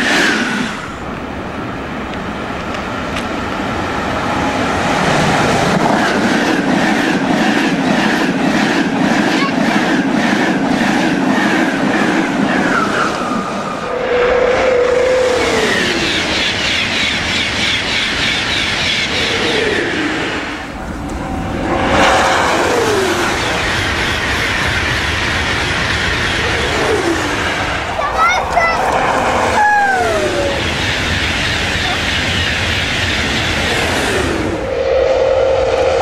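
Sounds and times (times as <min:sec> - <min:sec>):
train rushing past on rails: 0:00.0 - 0:36.0
whining tones sliding down: 0:12.6 - 0:17.0, 0:19.0 - 0:31.9.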